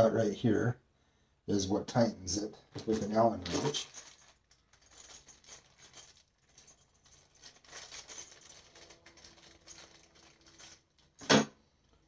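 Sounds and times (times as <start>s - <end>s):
plastic bag rustling: 2.7s - 11.2s.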